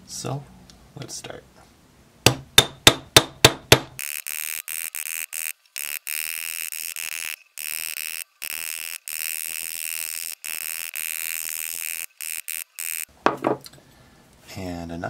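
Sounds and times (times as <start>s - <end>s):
high metallic hammering buzz: 2.6s - 13.1s.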